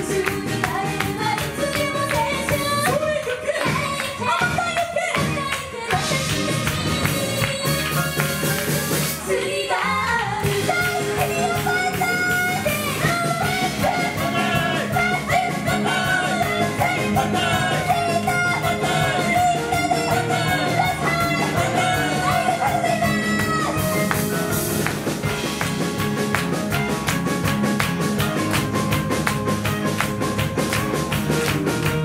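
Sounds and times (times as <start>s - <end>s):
women singing: 0.0s - 8.4s, 9.2s - 24.2s
live pop band playing: 0.0s - 32.0s.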